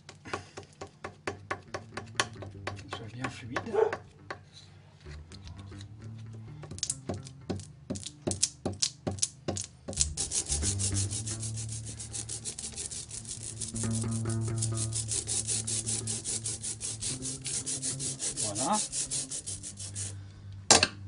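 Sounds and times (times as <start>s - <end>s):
ink dabber scrubbing metal plate: 10.0s - 20.2s.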